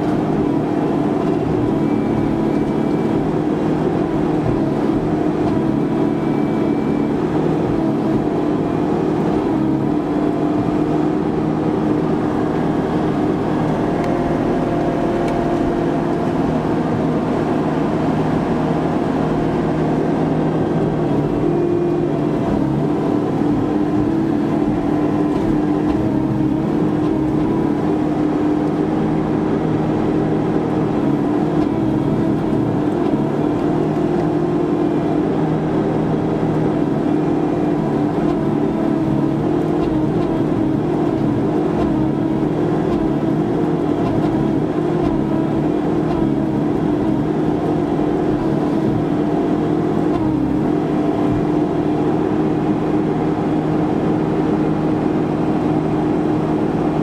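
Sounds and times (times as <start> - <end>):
engine and hydraulics running: 0.0 - 57.0.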